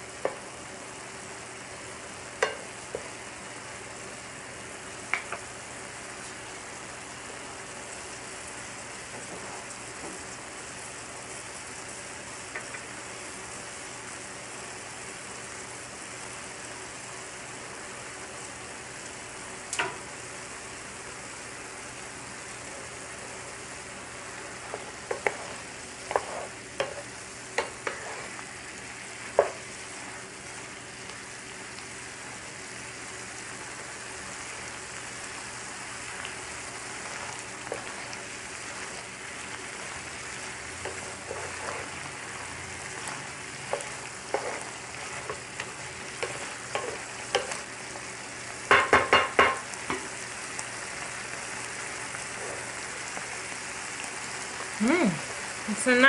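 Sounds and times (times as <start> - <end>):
shrimp sizzling in a frying pan: 0.0 - 56.0
wooden spatula knocking on a pan: 2.4 - 3.1, 25.1 - 25.4, 29.3 - 29.6, 48.7 - 50.1.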